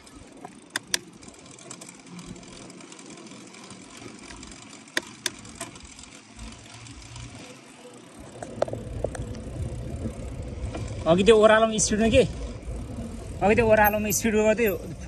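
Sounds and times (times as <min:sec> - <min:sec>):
bicycle tyres rolling on tarmac: 0:00.0 - 0:15.0
sharp clicks: 0:00.7 - 0:01.1, 0:04.2 - 0:05.8.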